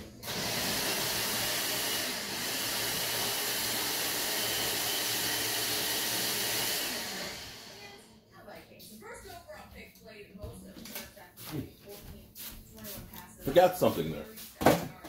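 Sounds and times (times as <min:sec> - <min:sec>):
blender motor whirring: 0:00.0 - 0:08.0.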